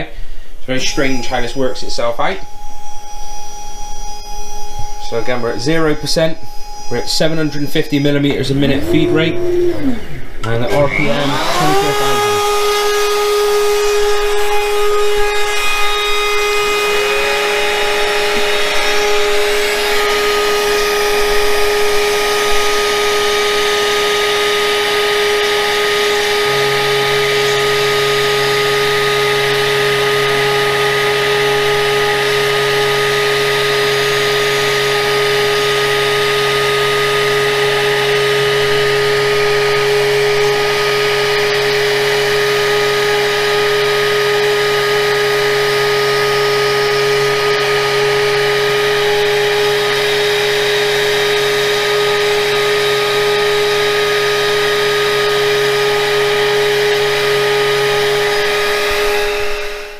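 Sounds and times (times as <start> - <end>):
low steady hum: 0.0 - 44.0
router spindle high whine: 0.0 - 59.9
motor spinning up: 8.2 - 59.9.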